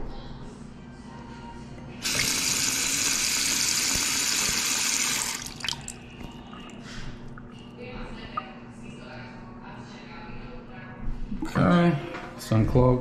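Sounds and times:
water splashing into sink: 2.0 - 7.5
water dripping: 2.0 - 7.6.

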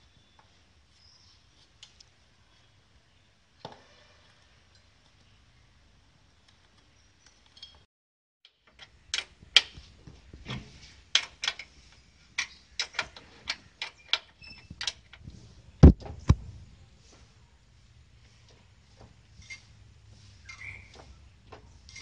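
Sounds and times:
metal lever clicks and clanks: 8.5 - 9.8, 10.5 - 11.8, 12.4 - 15.2.

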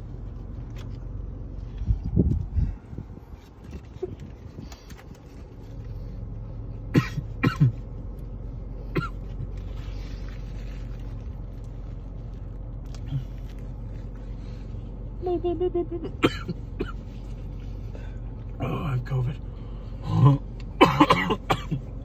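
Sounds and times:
low car hum: 0.0 - 22.0
man coughing: 6.9 - 7.8, 8.9 - 9.3, 16.0 - 17.0, 20.8 - 22.0.

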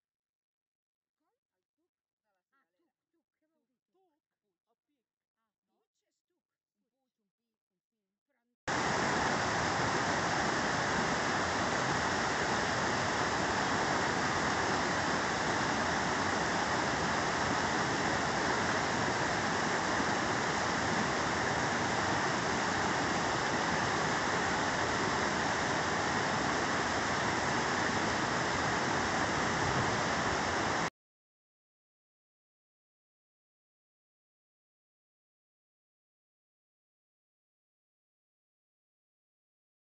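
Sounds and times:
stream rushing over rocks: 8.7 - 30.9.

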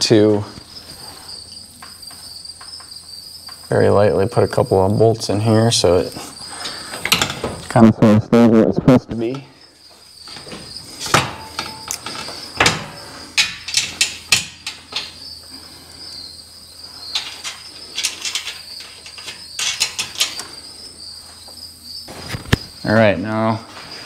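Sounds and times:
cricket trill: 0.0 - 24.0
metal bolts clicking and clinking: 7.0 - 7.6, 10.3 - 15.2, 17.1 - 20.5.

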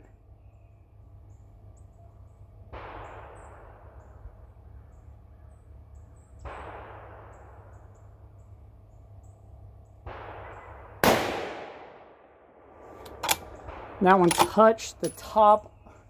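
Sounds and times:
echoing gunshots: 2.7 - 4.3, 6.4 - 7.9, 10.0 - 14.7.

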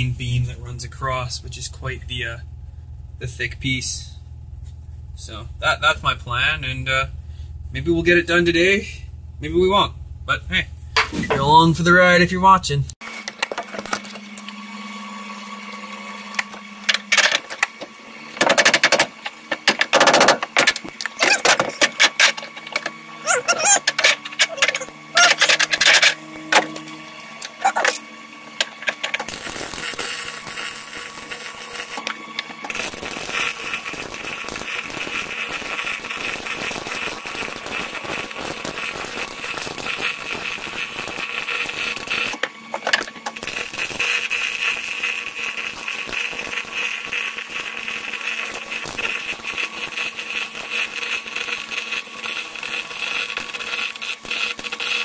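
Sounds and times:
welder arc crackling: 16.2 - 55.0.

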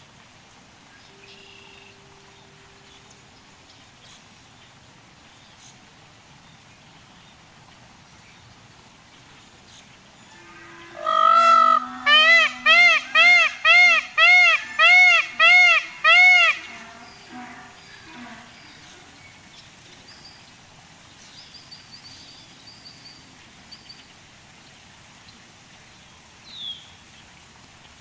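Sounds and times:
faint outdoor background: 0.0 - 28.0
large bird honking: 10.3 - 19.1.

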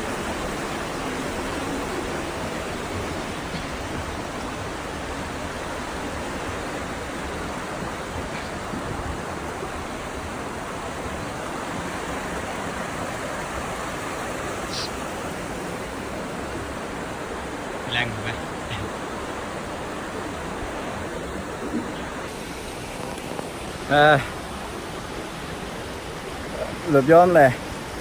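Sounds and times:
stream rushing over boulders: 0.0 - 28.0.

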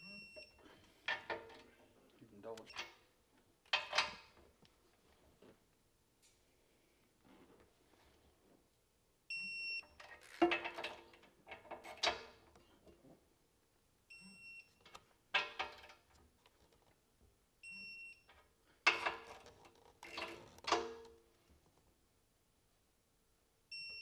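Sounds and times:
wrench clanking on bolts: 3.7 - 4.3, 18.9 - 21.2.

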